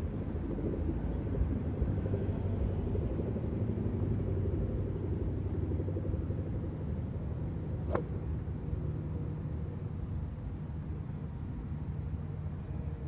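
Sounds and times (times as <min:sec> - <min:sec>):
steady low rumble: 0:00.0 - 0:12.2
golf club striking ball: 0:07.9 - 0:08.2.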